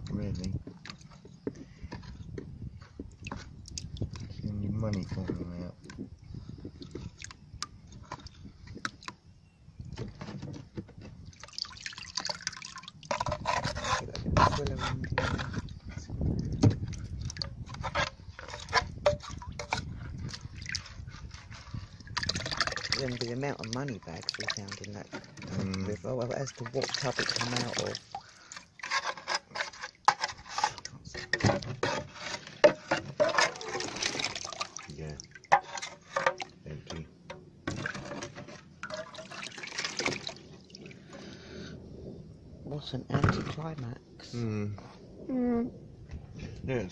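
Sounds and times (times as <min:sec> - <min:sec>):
muddy water pouring and splashing: 0:03.0 - 0:09.1, 0:11.2 - 0:37.0, 0:37.6 - 0:41.6
water dripping: 0:11.3 - 0:13.1, 0:22.2 - 0:25.1, 0:38.8 - 0:41.0
metal rod scraping mud: 0:13.0 - 0:23.4, 0:25.0 - 0:34.6, 0:35.5 - 0:36.6.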